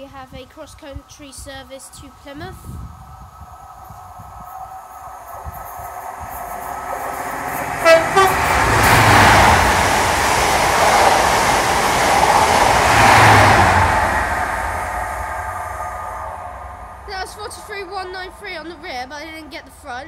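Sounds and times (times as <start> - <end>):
diesel train passing at speed: 2.1 - 20.0
two-tone train horn: 7.5 - 9.6.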